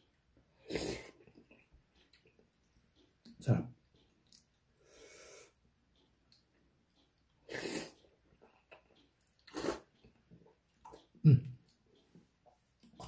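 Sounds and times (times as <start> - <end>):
person slurping noodles: 0.6 - 1.2, 7.5 - 8.0, 9.5 - 9.9.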